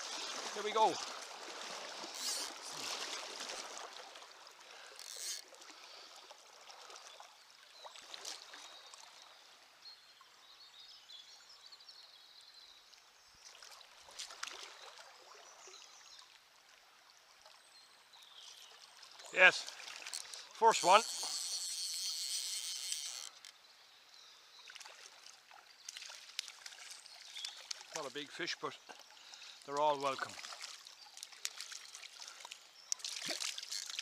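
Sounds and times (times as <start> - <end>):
river water running over stones: 0.0 - 10.6, 12.8 - 34.0.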